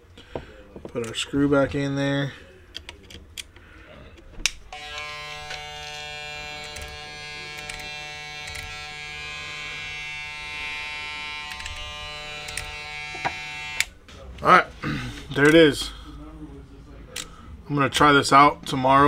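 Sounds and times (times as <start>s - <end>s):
hair clipper buzzing: 4.7s - 13.9s.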